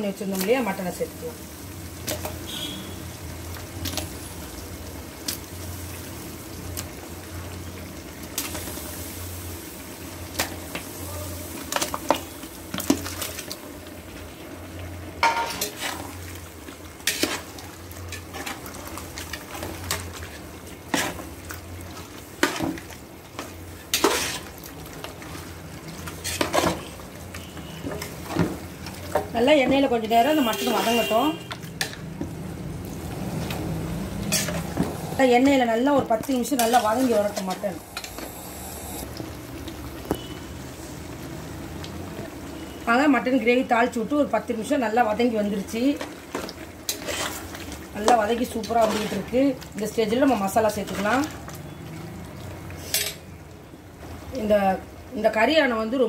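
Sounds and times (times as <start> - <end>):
meat sizzling: 0.4 - 29.1, 31.7 - 42.8.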